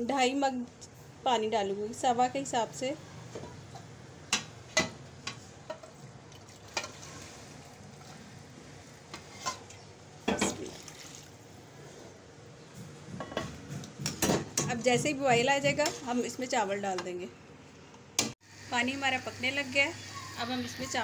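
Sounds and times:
water pouring into metal pot: 6.3s - 8.2s, 10.5s - 11.4s.

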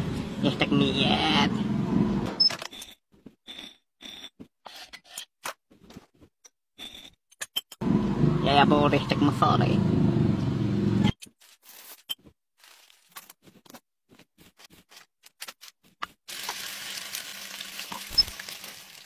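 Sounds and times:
paper rustling: 11.3s - 16.5s.

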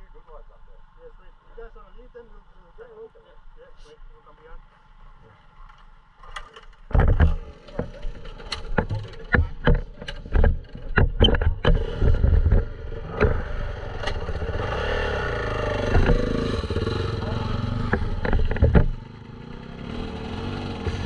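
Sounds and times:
dirt bike engine rumble: 4.6s - 21.0s
knocks and clatters: 6.2s - 14.8s, 15.7s - 19.3s.

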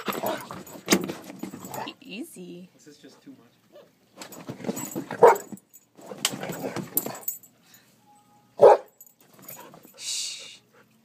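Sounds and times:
dog barking: 5.2s - 5.5s, 8.6s - 8.9s.

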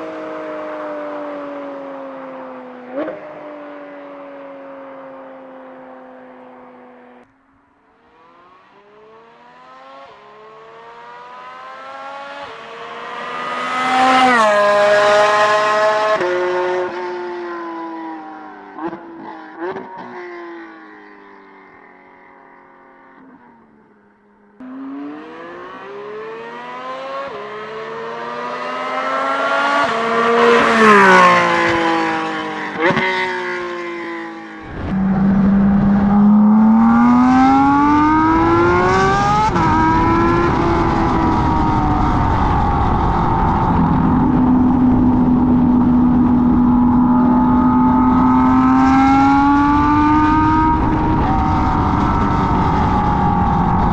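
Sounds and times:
sports car accelerating past: 24.6s - 53.9s.

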